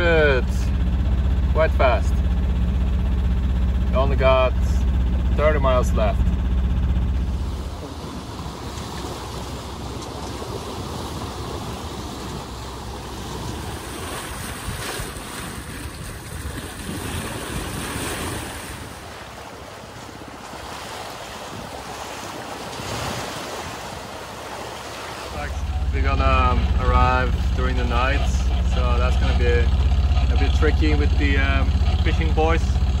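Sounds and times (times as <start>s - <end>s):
bow wave rushing and splashing: 0.0s - 33.0s
wind on microphone: 14.2s - 19.1s.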